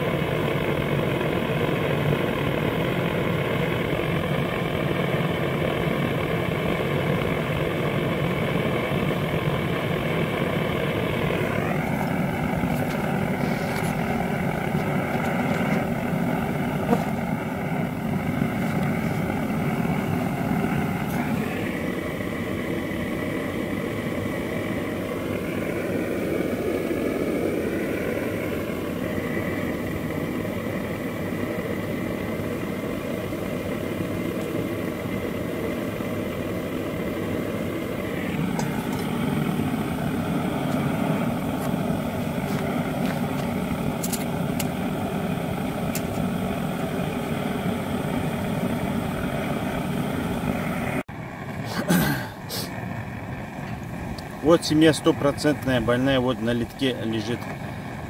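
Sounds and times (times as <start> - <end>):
honeybees buzzing: 0.0 - 51.0.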